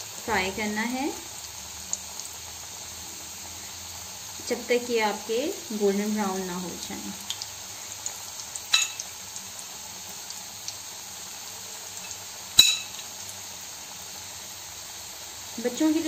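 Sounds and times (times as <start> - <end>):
chicken sizzling in hot oil: 0.0 - 16.0.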